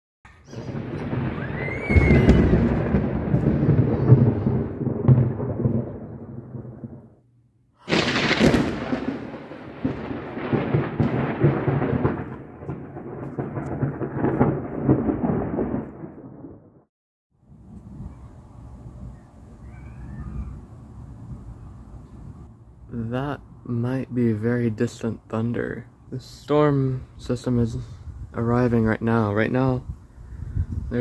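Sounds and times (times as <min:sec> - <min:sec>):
thunder crack: 0:00.3 - 0:07.2, 0:07.8 - 0:16.9
thunder rumbling: 0:00.3 - 0:16.9, 0:17.5 - 0:31.0.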